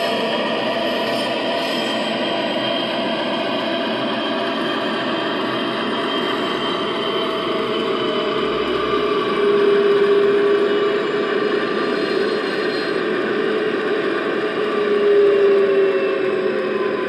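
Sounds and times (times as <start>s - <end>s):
model locomotive diesel engine sound: 0.0s - 17.0s
droning tone: 4.7s - 17.0s.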